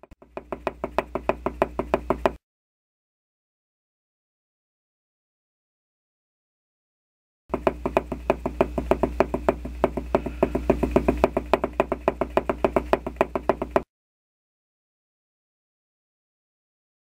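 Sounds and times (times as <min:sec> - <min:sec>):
low steady hum: 0:07.5 - 0:13.8
fast hard footstep knocks: 0:07.5 - 0:13.9.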